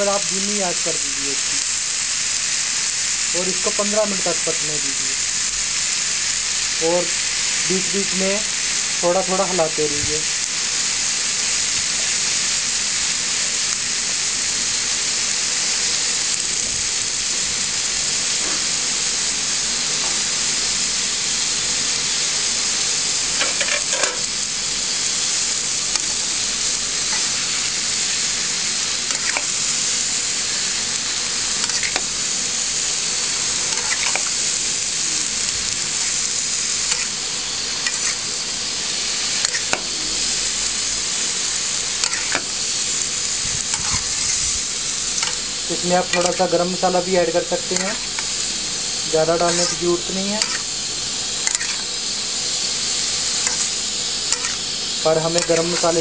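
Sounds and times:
vegetables sizzling in a pan: 0.0s - 56.0s
spatula scraping a pan: 23.4s - 24.3s, 31.6s - 32.2s, 33.6s - 34.4s, 36.8s - 38.2s, 39.3s - 40.2s, 42.0s - 42.5s, 49.4s - 50.7s, 51.4s - 52.0s, 53.3s - 54.6s.

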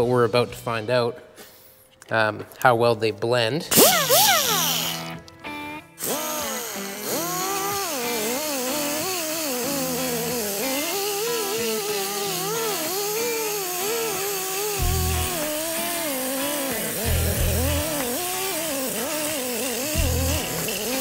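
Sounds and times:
die grinder sanding metal: 3.8s - 5.2s, 6.0s - 21.0s.

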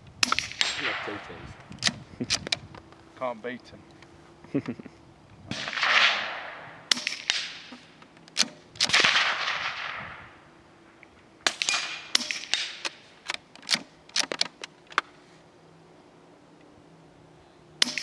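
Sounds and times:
suppressed rifle shots: 0.2s - 2.0s, 5.5s - 10.5s, 11.4s - 13.1s, 17.8s - 18.0s
rifle bolt clicks: 6.9s - 9.2s, 11.5s - 15.0s.

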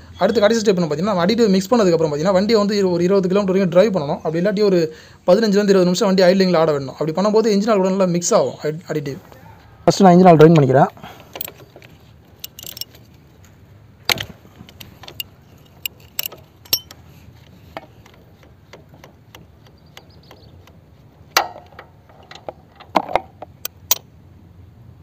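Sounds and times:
metal clanks: 11.1s - 13.1s, 14.1s - 24.0s
wrench clicking on metal: 11.2s - 13.0s, 14.1s - 20.8s, 23.6s - 24.0s.

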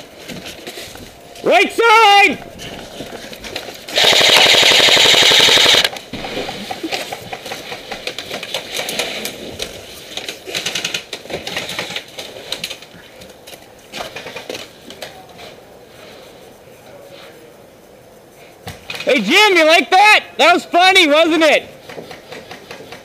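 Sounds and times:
airsoft machine gun burst: 3.9s - 9.2s.

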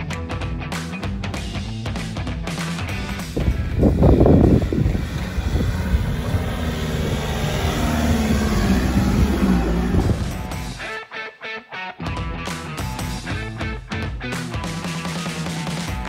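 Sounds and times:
diesel engine under load: 3.4s - 10.5s.

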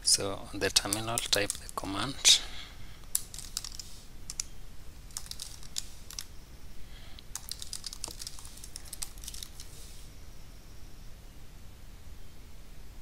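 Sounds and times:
computer keyboard typing: 0.8s - 1.9s, 3.1s - 4.5s, 5.1s - 6.3s, 7.2s - 9.8s.

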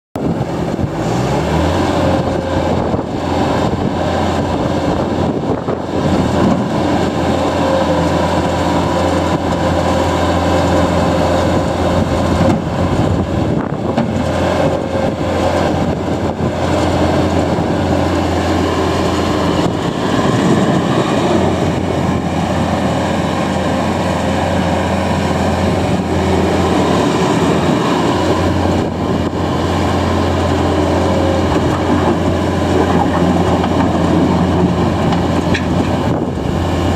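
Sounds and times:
diesel engine under load: 0.2s - 36.9s.

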